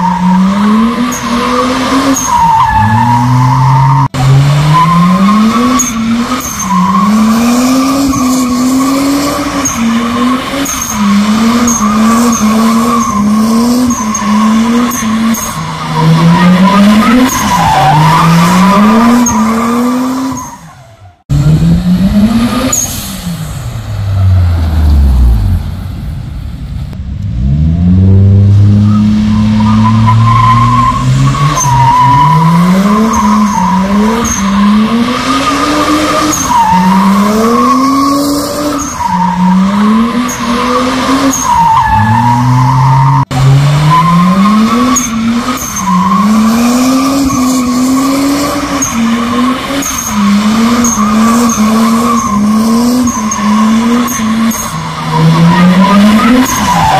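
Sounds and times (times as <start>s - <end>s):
car engine revving hard: 39.4s - 56.9s.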